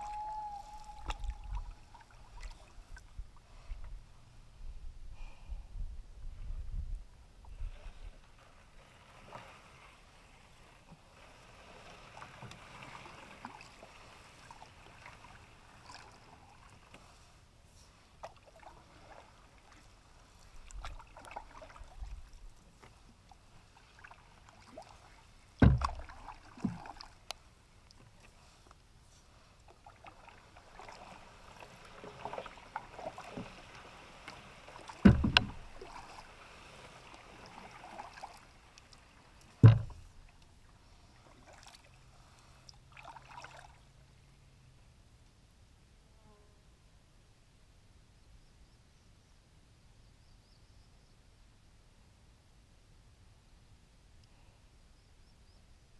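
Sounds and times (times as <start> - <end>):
paddle water swishes: 0.0 - 4.8, 7.3 - 44.1
knocks on metal canoe hull: 25.6 - 26.0, 35.0 - 35.6, 39.6 - 40.0.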